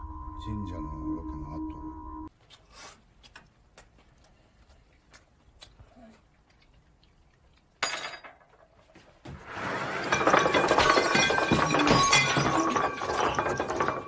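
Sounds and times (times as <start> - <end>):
tableware clink: 7.8 - 8.4, 10.0 - 14.0
dishes and glass shattering: 7.8 - 8.6, 9.7 - 14.0.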